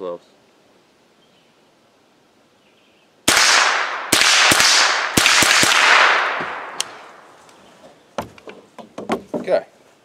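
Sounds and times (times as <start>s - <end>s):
rifle shots: 3.3s - 7.3s.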